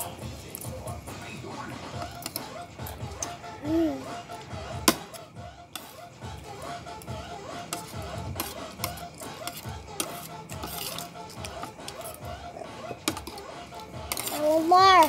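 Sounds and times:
faint background music: 0:00.0 - 0:15.0
metal spoon scraping a plate: 0:01.9 - 0:03.4, 0:05.0 - 0:15.0.

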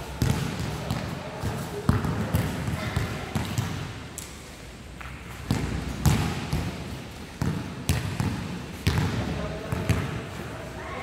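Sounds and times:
basketballs bouncing on court: 0:00.2 - 0:03.8, 0:05.4 - 0:10.3.

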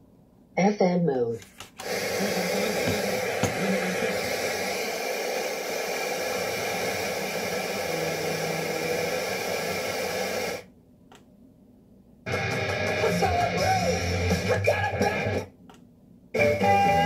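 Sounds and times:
radio static hiss: 0:01.7 - 0:10.7.

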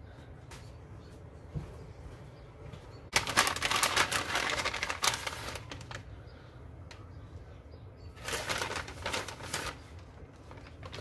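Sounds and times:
plastic bag crinkling: 0:03.1 - 0:06.2, 0:08.2 - 0:11.0.

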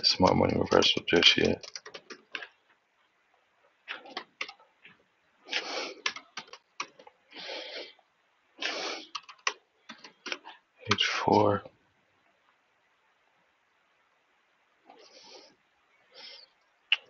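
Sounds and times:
computer keyboard typing: 0:01.5 - 0:02.5, 0:03.9 - 0:04.6, 0:06.0 - 0:07.1, 0:09.0 - 0:10.4.

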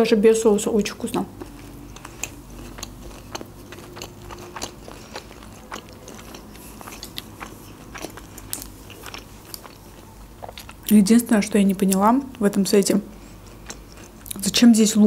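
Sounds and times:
person chewing sushi: 0:01.3 - 0:10.9, 0:13.1 - 0:14.4
small mouth clicks and crunches: 0:01.4 - 0:11.0, 0:11.8 - 0:14.5.

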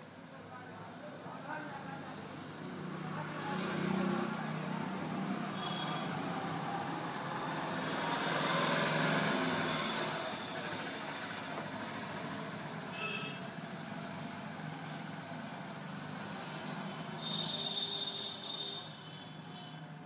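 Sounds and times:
traffic hum: 0:00.0 - 0:20.0
vehicle engine passing: 0:02.7 - 0:12.8.

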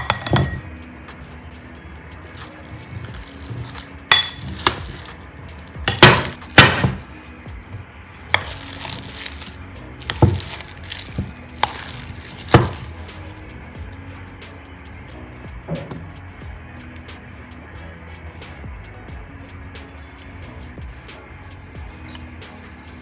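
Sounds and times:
metal masher clinking on glass: 0:00.0 - 0:00.7, 0:03.6 - 0:04.9
potatoes being mashed: 0:02.2 - 0:14.0.

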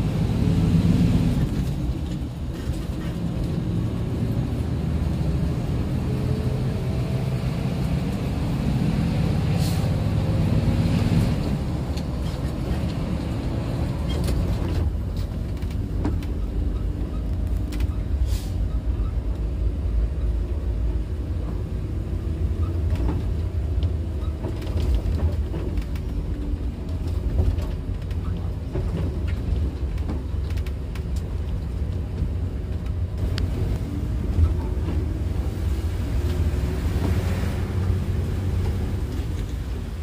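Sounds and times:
bus engine and road rumble: 0:00.0 - 0:40.0
bodywork knocks and rattles: 0:22.7 - 0:33.2.

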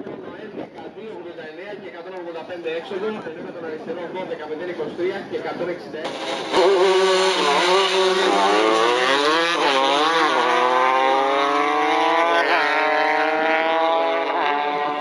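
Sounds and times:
motorcycles accelerating hard: 0:06.1 - 0:15.0.

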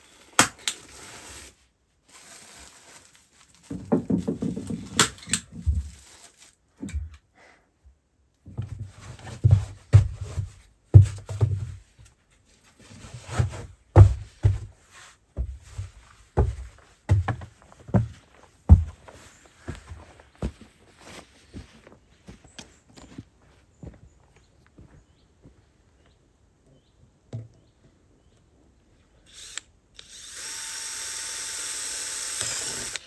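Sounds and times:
rustling scuffle: 0:00.8 - 0:06.6, 0:08.6 - 0:24.0
boots thudding on wooden floorboards: 0:08.5 - 0:11.8, 0:13.3 - 0:14.8, 0:15.4 - 0:22.4.

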